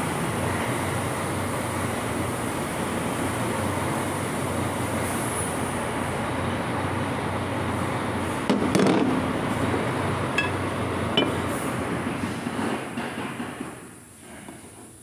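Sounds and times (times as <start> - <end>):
steady background noise: 0.0 - 15.0
metal pieces clinking on concrete: 10.4 - 10.6, 11.2 - 11.4.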